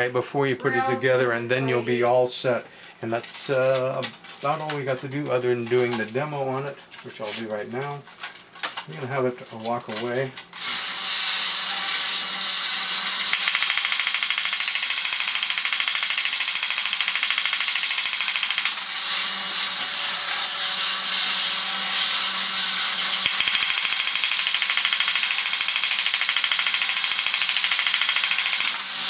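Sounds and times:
toy robot motor whirring: 0:09.9 - 0:29.0.

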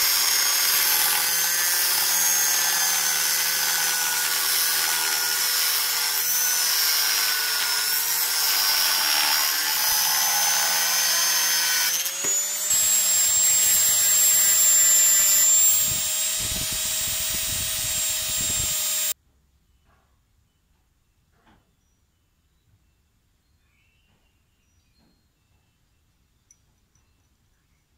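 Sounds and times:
angle grinder cutting steel: 0:00.0 - 0:19.2.

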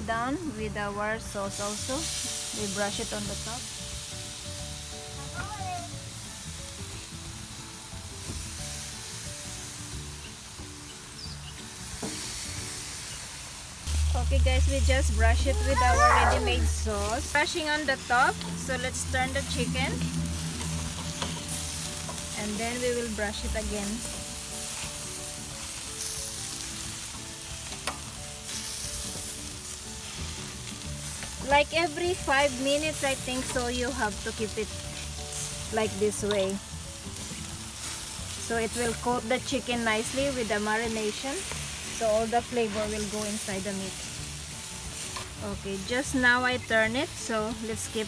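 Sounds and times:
chicken sizzling on a grill: 0:00.0 - 0:48.0
soft background music: 0:00.0 - 0:48.0.

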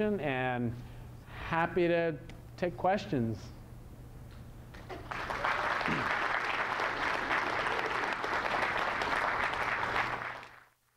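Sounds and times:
audience applauding: 0:04.8 - 0:10.8.

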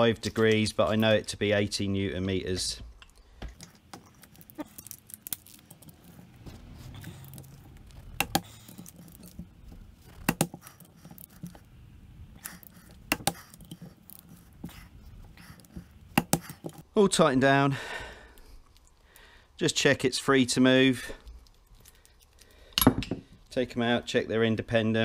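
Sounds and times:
rustling of parts handled: 0:00.0 - 0:11.7.

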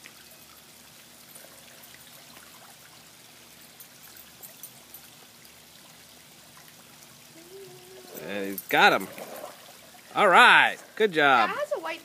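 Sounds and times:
pool water lapping: 0:00.0 - 0:12.0
swimmer splashing: 0:05.7 - 0:12.0.

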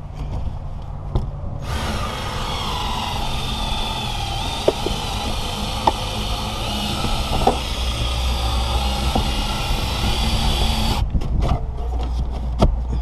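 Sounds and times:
powered cutting tool running: 0:01.6 - 0:11.0.

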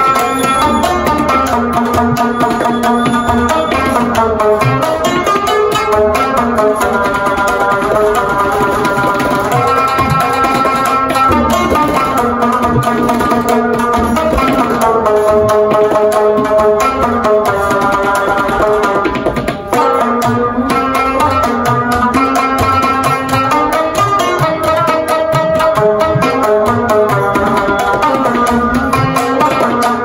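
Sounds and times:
instrumental music with drums: 0:00.0 - 0:30.0.

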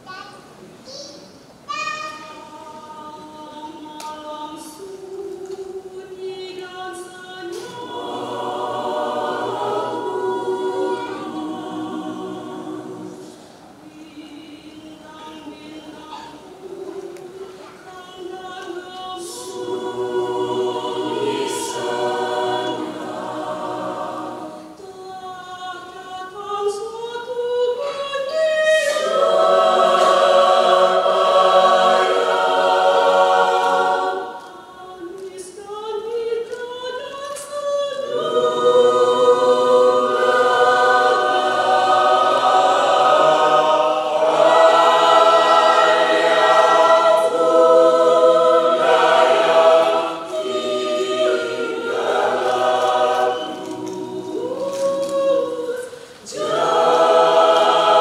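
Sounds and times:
mixed choir singing in parts: 0:02.3 - 0:58.0.

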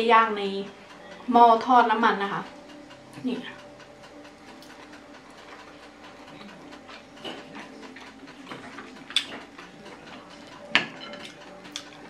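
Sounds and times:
cutlery clinking on a plate: 0:10.6 - 0:12.0.

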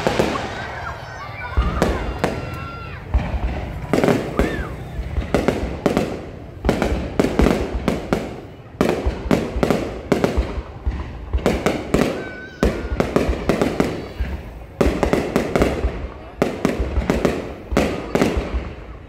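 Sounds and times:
fireworks bursting bangs: 0:00.0 - 0:19.0.

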